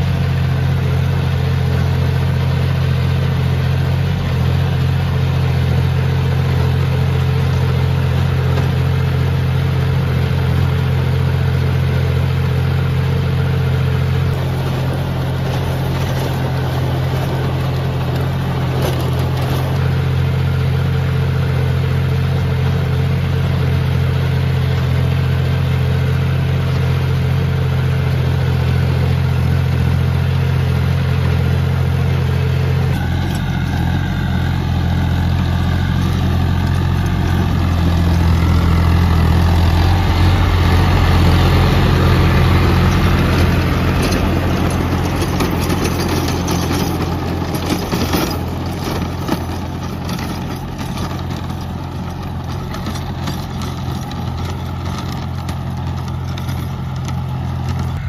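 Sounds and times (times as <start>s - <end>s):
tractor diesel engine running: 0.0s - 58.0s
rotavator churning soil: 12.9s - 21.4s, 32.7s - 58.0s.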